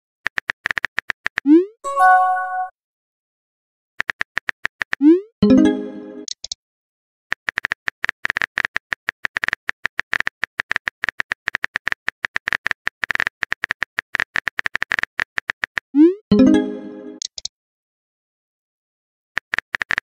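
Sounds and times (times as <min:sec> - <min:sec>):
phone keyboard clicks: 0:19.4 - 0:20.0.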